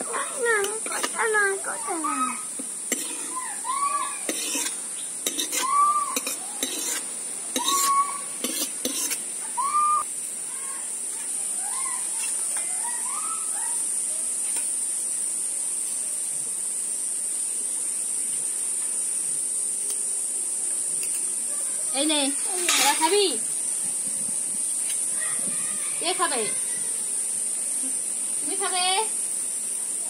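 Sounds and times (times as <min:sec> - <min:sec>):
steady high hiss: 0:00.0 - 0:30.0
metal ladle scraping a wok: 0:02.9 - 0:03.4, 0:04.3 - 0:09.2.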